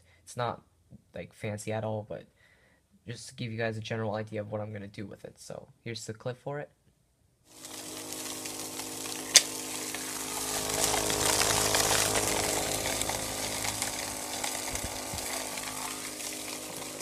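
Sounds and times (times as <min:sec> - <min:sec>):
air rushing with crackling: 0:07.6 - 0:17.0
vacuum fan whining: 0:07.6 - 0:17.0.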